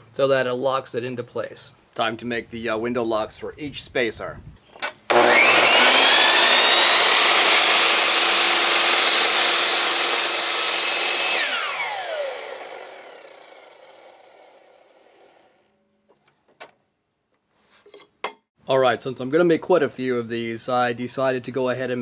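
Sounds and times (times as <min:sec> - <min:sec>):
saw blade spinning down: 0:05.1 - 0:15.6
miter saw cutting wood: 0:05.1 - 0:15.7.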